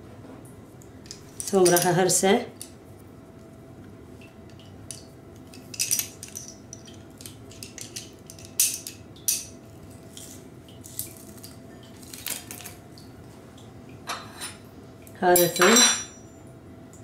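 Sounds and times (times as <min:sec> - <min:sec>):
faint steady hum: 0:00.0 - 0:17.0
metal kitchen utensils clinking: 0:15.3 - 0:16.2.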